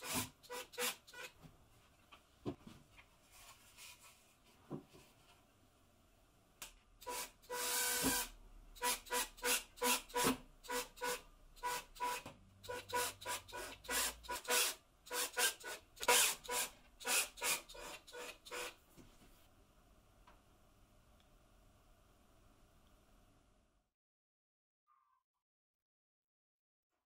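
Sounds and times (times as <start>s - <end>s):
cordless drill motor bursts: 0.0s - 1.3s, 7.0s - 18.8s.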